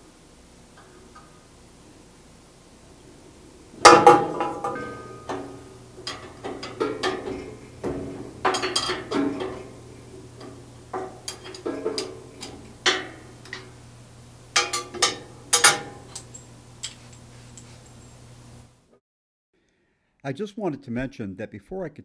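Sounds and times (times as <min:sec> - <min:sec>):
wrenches clinking on metal bolt: 0:03.8 - 0:13.8, 0:14.4 - 0:18.3.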